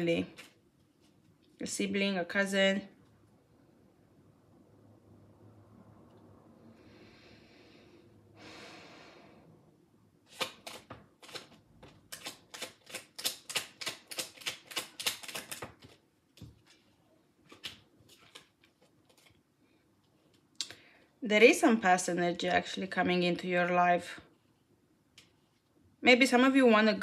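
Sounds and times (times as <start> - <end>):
cards shuffling: 0.2 - 1.1, 10.3 - 19.4
cards tapped down: 10.3 - 16.6.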